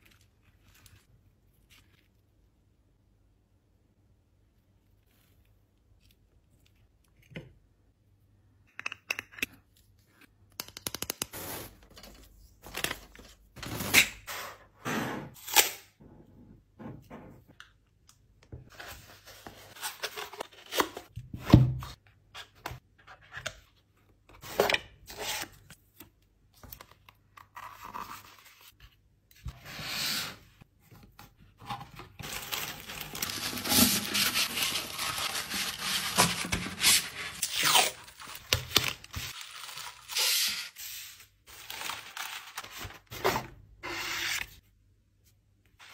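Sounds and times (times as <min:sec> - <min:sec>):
paper wrap crackling: 0:32.2 - 0:40.4.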